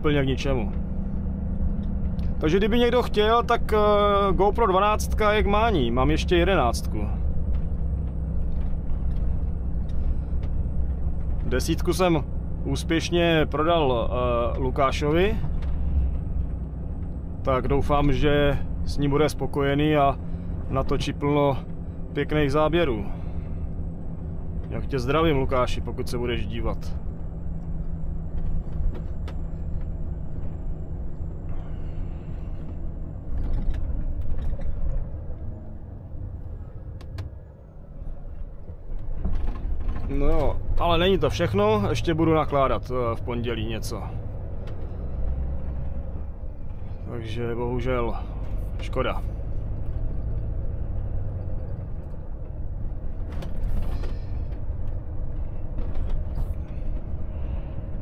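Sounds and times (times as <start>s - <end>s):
diesel engine rumble: 0.0s - 58.0s
road noise: 0.0s - 58.0s.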